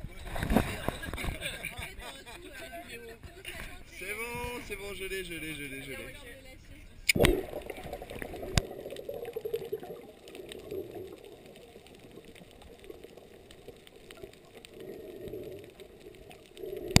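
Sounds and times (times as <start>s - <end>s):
underwater rush: 7.1s - 17.0s
faint clicks: 8.1s - 17.0s.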